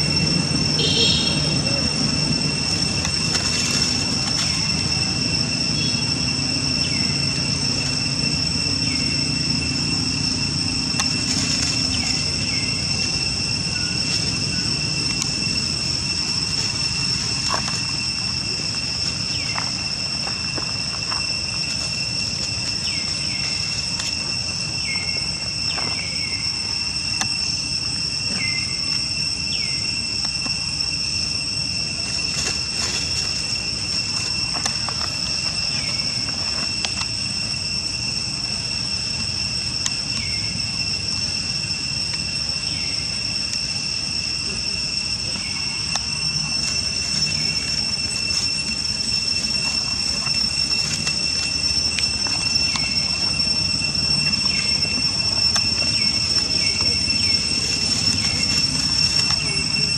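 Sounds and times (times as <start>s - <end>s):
insects droning: 0.0s - 59.9s.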